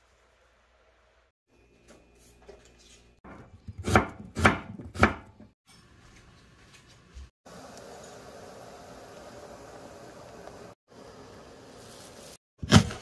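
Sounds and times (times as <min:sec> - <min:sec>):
knife chopping on cutting board: 0:03.7 - 0:05.3.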